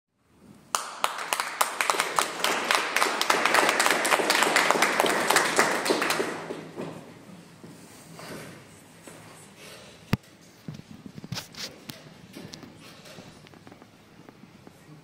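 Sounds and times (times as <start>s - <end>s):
small audience applauding: 0.7s - 7.1s.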